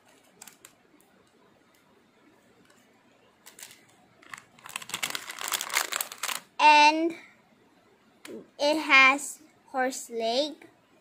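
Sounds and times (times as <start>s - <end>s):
plastic bag crinkling: 3.4s - 6.6s.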